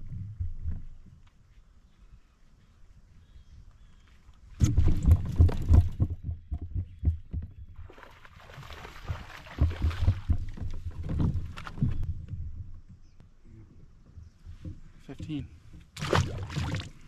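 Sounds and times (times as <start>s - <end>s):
thumps on kayak hull: 4.6s - 7.6s, 8.9s - 12.7s
fish splashing in water: 7.8s - 10.7s, 16.0s - 17.0s.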